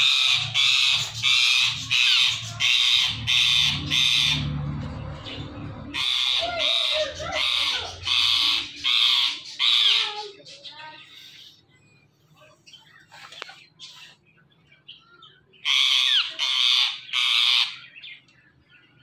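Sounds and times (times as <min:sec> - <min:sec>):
parakeet screeching: 0:00.0 - 0:10.6, 0:15.6 - 0:18.0.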